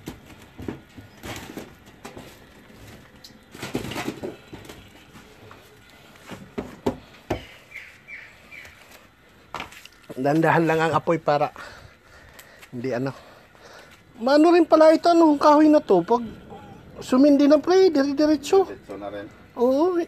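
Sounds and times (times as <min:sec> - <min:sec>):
wood fire crackling: 0:00.0 - 0:20.0
bird chirps: 0:07.4 - 0:09.0.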